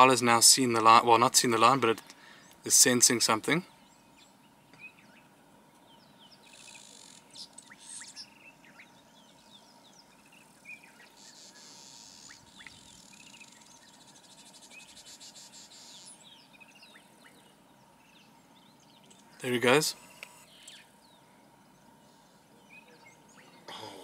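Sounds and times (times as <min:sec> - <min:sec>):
birds chirping: 0:00.0 - 0:24.0
insect buzzing: 0:10.4 - 0:16.2.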